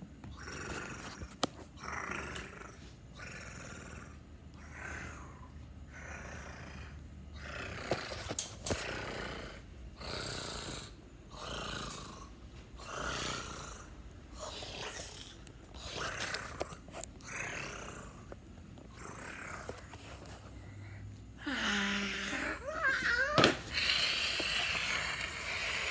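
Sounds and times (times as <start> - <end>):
person breathing heavily: 19.5 - 22.7, 23.6 - 25.9.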